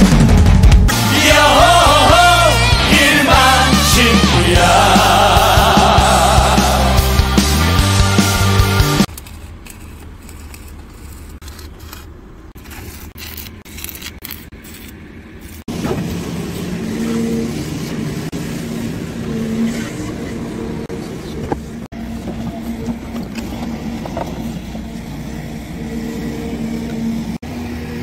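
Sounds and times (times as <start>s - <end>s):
music sting: 0.0s - 9.1s
excavator diesel engine running: 0.0s - 9.7s, 15.7s - 28.0s
low site noise: 9.0s - 28.0s.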